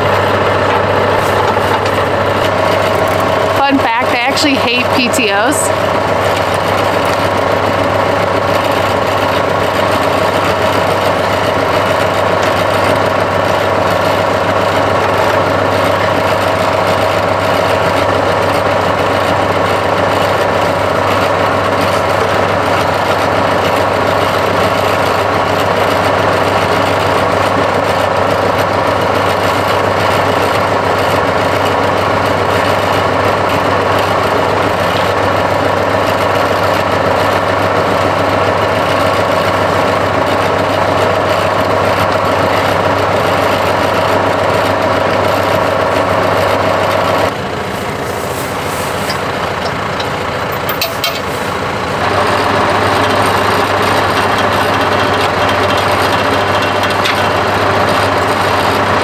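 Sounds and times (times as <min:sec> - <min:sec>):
tractor diesel engine idling: 0:00.0 - 0:59.0.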